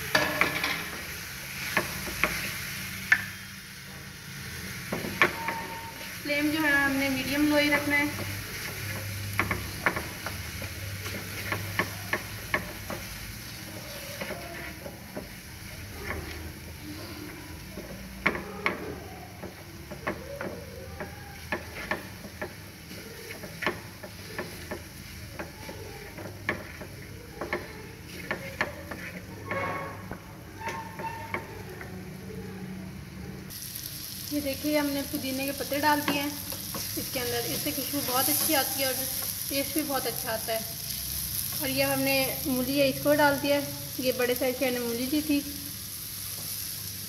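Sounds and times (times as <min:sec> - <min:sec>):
faint sizzle: 0:00.0 - 0:47.0
spatula scraping metal pan: 0:05.2 - 0:19.0, 0:21.4 - 0:31.7.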